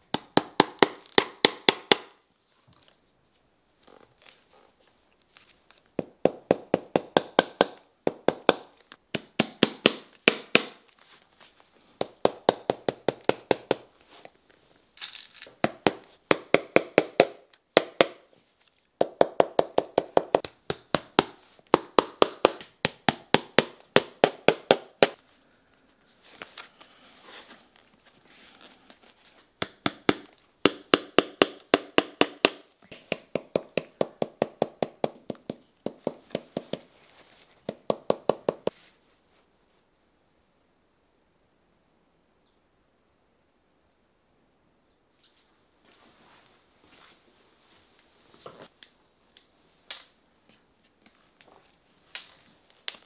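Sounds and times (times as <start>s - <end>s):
hammer tapping leather boot: 6.0s - 10.8s, 12.0s - 13.9s, 15.6s - 18.2s, 19.0s - 25.2s, 29.6s - 36.9s, 37.6s - 38.8s.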